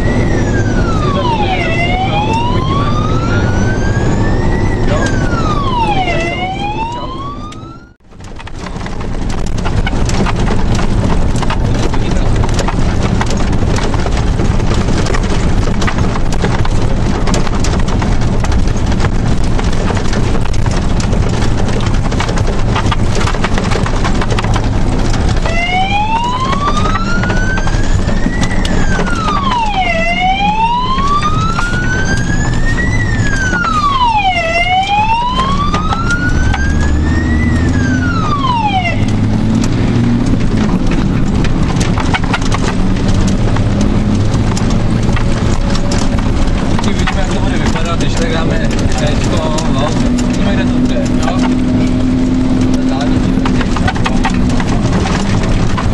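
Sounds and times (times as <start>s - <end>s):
fire engine siren wailing: 0.0s - 8.0s, 8.8s - 55.9s
truck engine and road noise: 0.0s - 55.9s.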